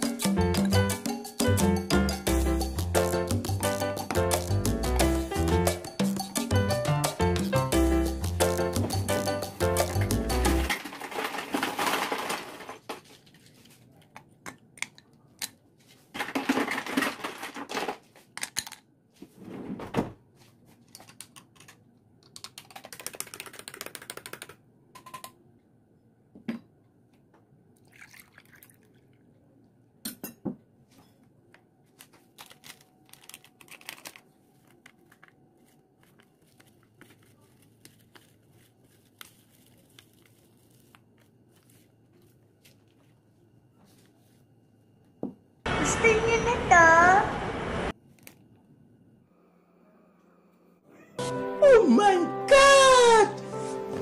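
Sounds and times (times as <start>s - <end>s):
liquid pouring into glass: 27.8s - 29.2s.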